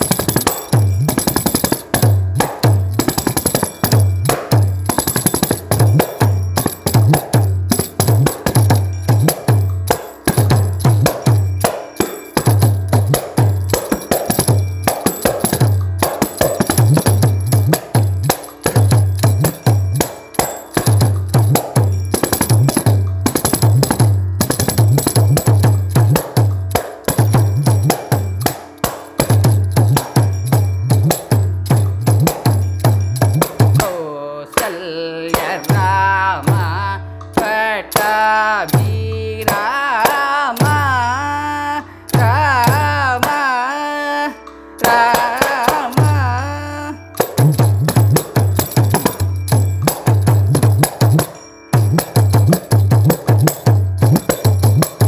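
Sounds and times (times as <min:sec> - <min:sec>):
frame drum with jingle: 0:00.0 - 0:41.5, 0:42.1 - 0:43.5, 0:44.8 - 0:55.0
person singing: 0:33.7 - 0:47.6.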